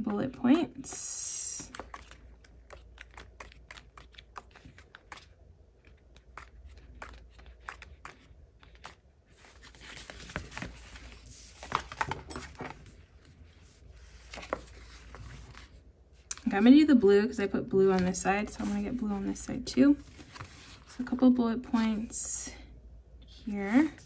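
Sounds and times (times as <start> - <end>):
paper rustling: 1.6 - 13.0, 13.9 - 15.8, 20.0 - 21.0.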